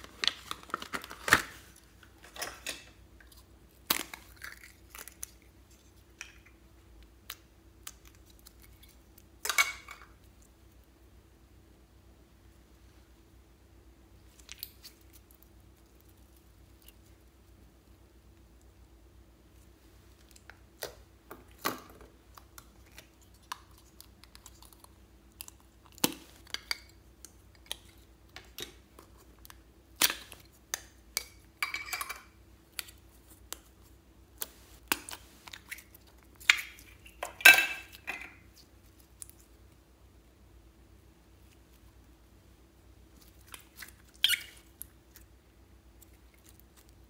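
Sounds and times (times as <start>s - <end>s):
slime squishing: 43.0s - 47.0s.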